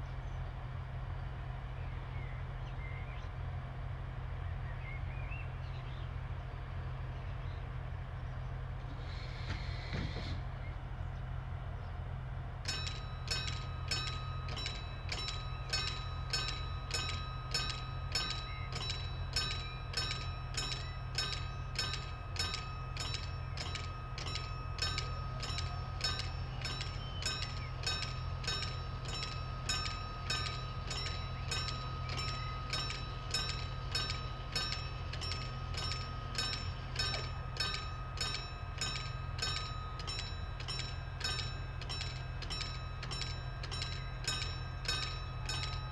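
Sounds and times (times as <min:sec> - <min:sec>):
diesel railcar idling hum: 0:00.0 - 0:45.9
level crossing bell ringing: 0:12.7 - 0:45.9.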